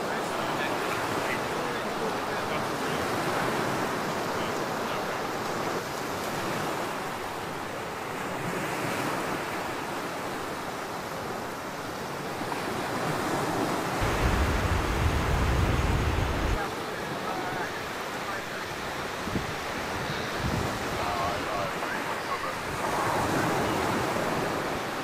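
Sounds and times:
surf breaking on beach: 0.0s - 25.0s
wind: 0.0s - 25.0s
wind buffeting microphone: 13.9s - 16.6s, 18.8s - 25.0s.

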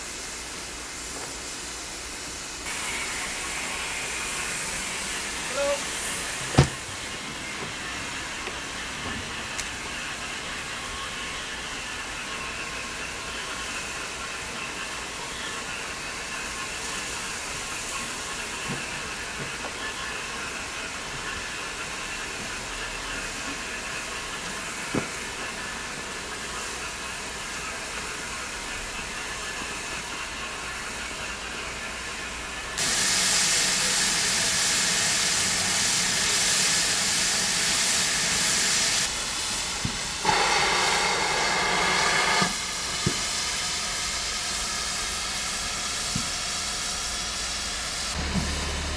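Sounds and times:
loud sharp steam hiss: 0.0s - 21.0s, 21.6s - 48.9s
steam locomotive hissing: 0.0s - 48.9s.

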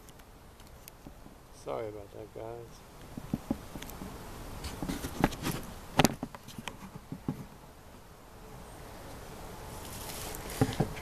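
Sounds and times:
footsteps through dry leaves: 9.7s - 10.7s.

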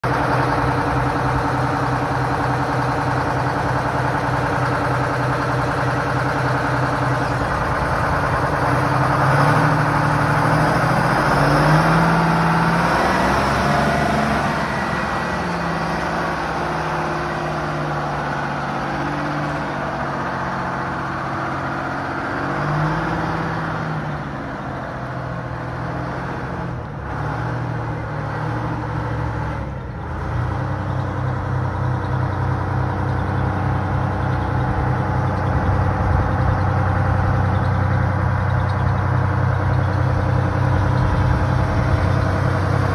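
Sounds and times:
large diesel engine idling: 0.0s - 42.9s.

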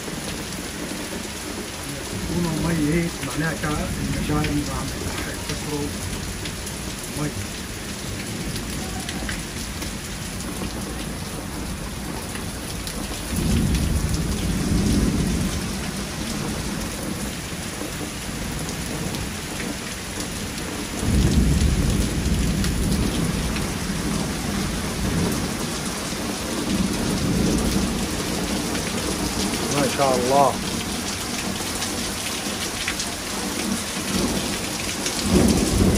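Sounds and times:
heavy rain falling: 0.0s - 35.9s
thunder rumbling: 1.9s - 19.3s, 21.0s - 29.4s, 35.2s - 35.9s.

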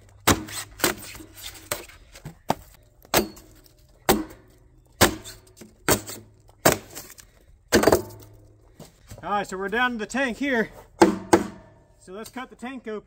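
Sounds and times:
pick mattock hacking sheet metal: 0.2s - 1.8s, 3.1s - 7.1s, 11.0s - 12.4s.

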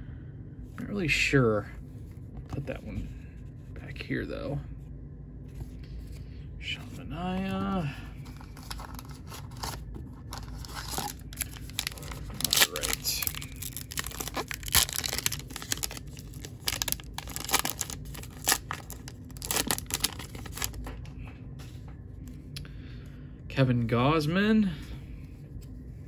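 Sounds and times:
wrapper tearing and crinkling: 8.3s - 20.9s.

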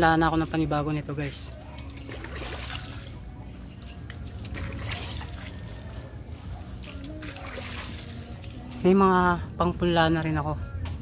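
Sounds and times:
water trickling and splashing: 1.2s - 9.4s.

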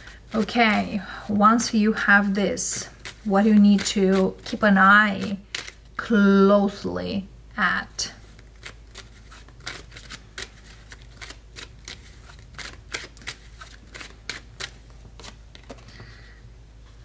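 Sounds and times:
cards being shuffled: 2.2s - 5.9s, 8.2s - 16.0s.

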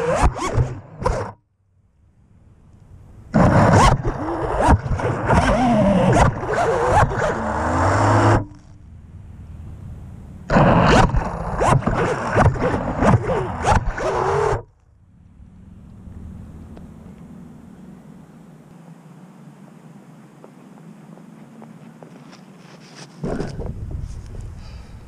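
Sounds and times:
drone motors spinning up: 3.3s - 8.8s, 10.5s - 18.2s.

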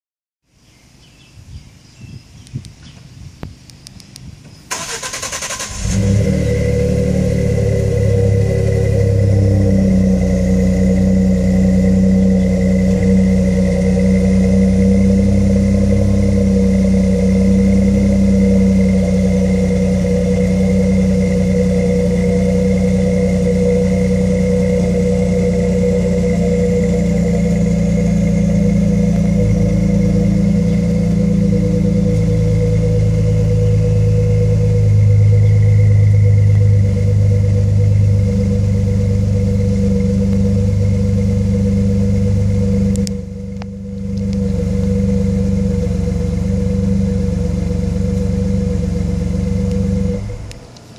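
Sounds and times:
engine starter cranking: 4.7s - 6.4s
truck engine idling: 4.7s - 50.9s.

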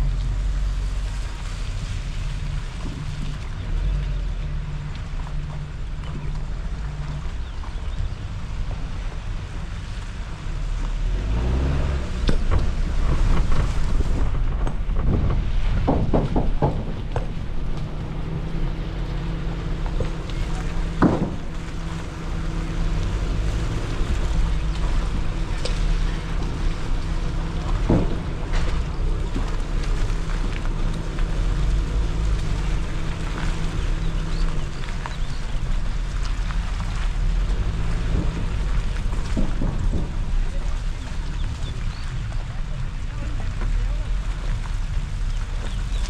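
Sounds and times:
car engine running at low revs: 0.0s - 46.0s
sharp knocks and rattles: 12.1s - 41.9s.

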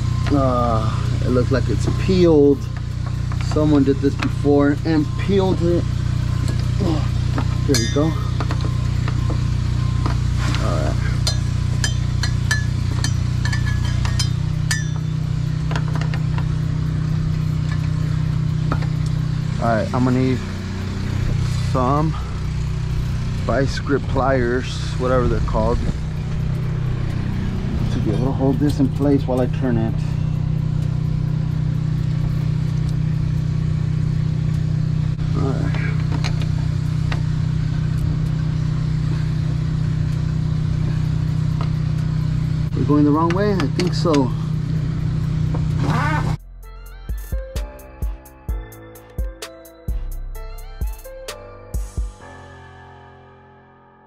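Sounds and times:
low engine hum: 0.0s - 52.4s
metal wrench clinking: 7.6s - 8.6s, 11.2s - 16.4s.

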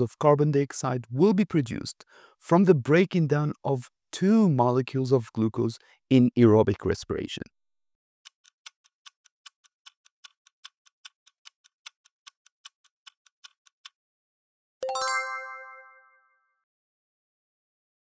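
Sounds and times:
stopwatch ticking: 8.3s - 14.0s
bell-like ding: 14.8s - 16.4s.

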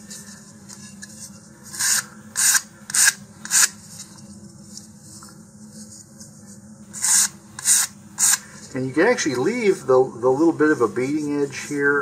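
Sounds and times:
sandpaper rubbing on wood: 7.0s - 8.4s.

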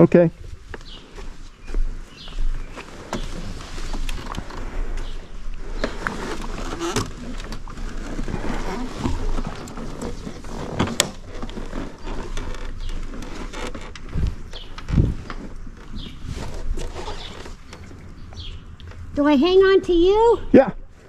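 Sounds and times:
rustling: 0.0s - 19.3s.

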